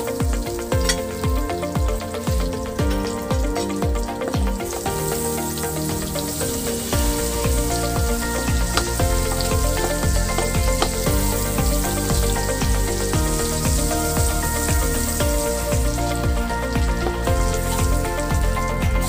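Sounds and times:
background music with a steady beat: 0.0s - 19.0s
butter and oil sizzling in a wok: 0.0s - 19.0s.

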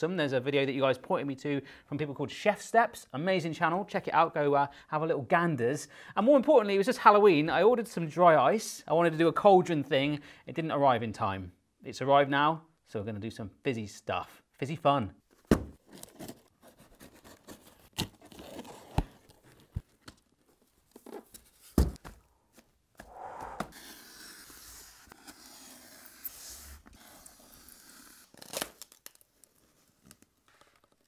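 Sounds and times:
tearing and scraping: 15.8s - 19.7s, 23.7s - 31.0s
knife slitting packing tape: 23.8s - 29.2s.

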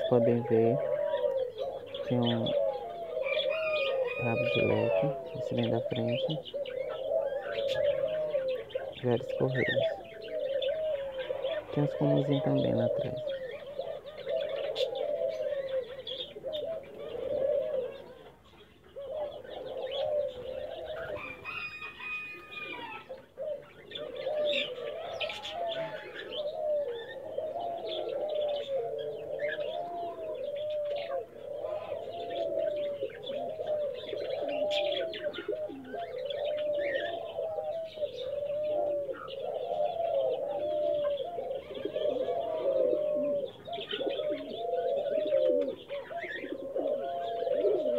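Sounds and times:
pigeons cooing: 0.0s - 47.9s.

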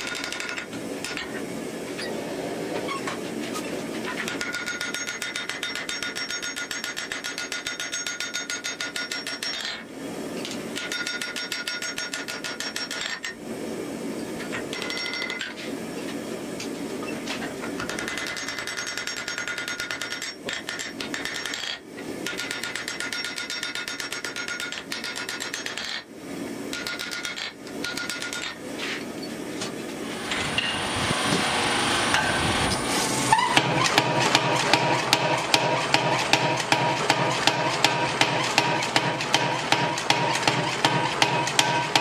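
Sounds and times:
hammer striking metal on anvil: 4.3s - 9.8s, 33.5s - 42.0s.

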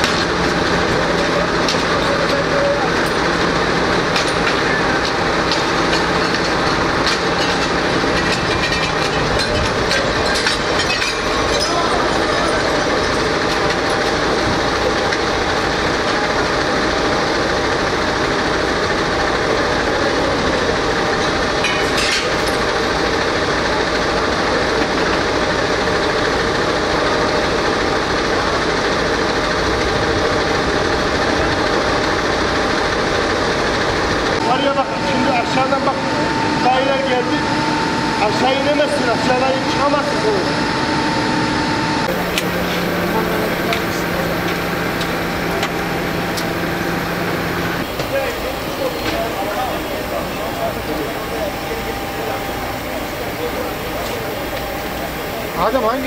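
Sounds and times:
fire truck engine running: 0.0s - 56.0s
hand tool clinking and knocking: 4.1s - 14.1s.

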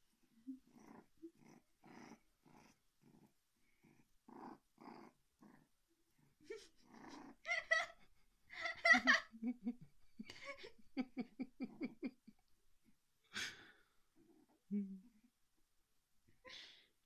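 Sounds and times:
puppy grunting and growling: 0.5s - 5.7s, 6.3s - 7.6s.

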